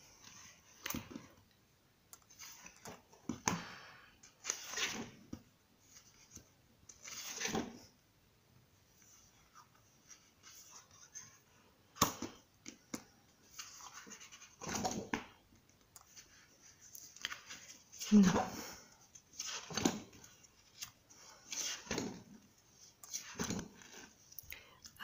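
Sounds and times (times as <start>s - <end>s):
book pages turning: 2.2s - 3.5s, 4.2s - 7.9s, 9.0s - 18.5s, 19.1s - 24.4s.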